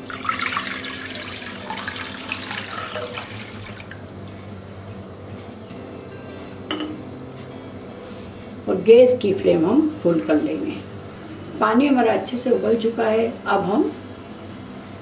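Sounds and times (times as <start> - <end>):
water pouring into a pan: 0.0 - 4.1.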